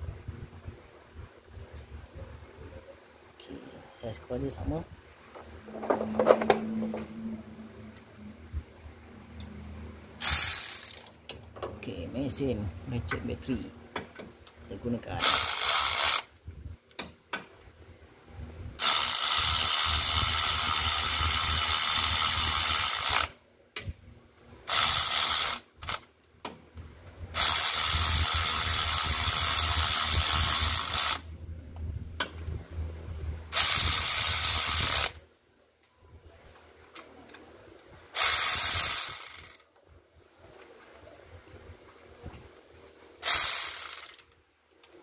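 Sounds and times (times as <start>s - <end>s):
electric ratchet wrench running: 10.2s - 11.2s, 15.2s - 16.3s, 18.8s - 23.4s, 24.7s - 26.0s, 27.4s - 31.3s, 33.5s - 35.2s, 38.2s - 39.6s, 43.2s - 44.3s.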